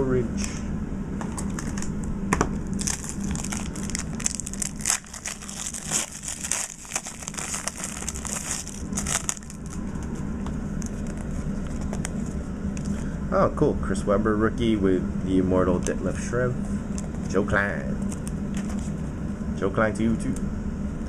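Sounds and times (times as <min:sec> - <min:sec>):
plastic wrapper crinkling: 0:02.7 - 0:10.2.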